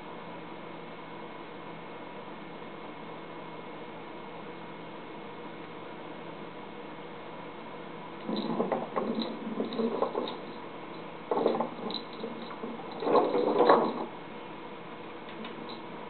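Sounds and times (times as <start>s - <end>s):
plastic ball rolling on wooden floor: 8.2s - 10.6s, 11.3s - 14.1s.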